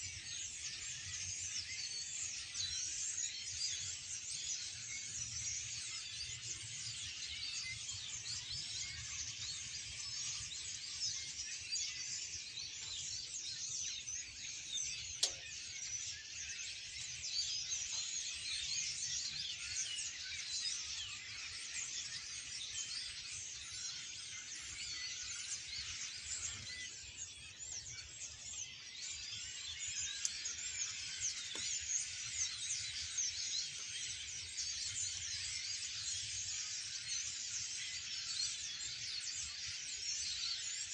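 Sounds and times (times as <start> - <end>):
flock of birds chirping: 0.0 - 40.9
sharp click: 15.2 - 15.5.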